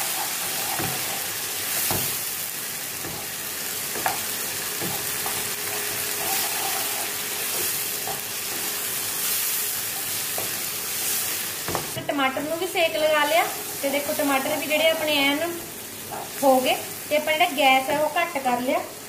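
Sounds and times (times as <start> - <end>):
vegetables sizzling in oil: 0.0 - 19.0.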